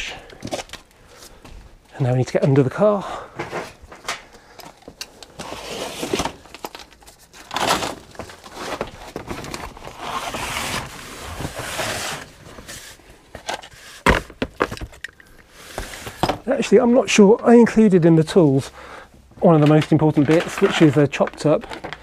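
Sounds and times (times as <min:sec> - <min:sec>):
cardboard and plastic scraping ground: 0:05.3 - 0:15.0, 0:19.5 - 0:22.0.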